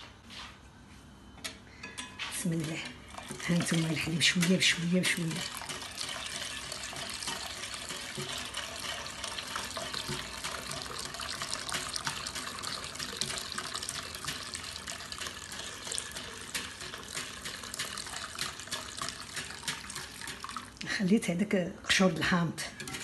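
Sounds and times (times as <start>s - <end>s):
liquid splashing and sloshing: 2.4s - 20.8s.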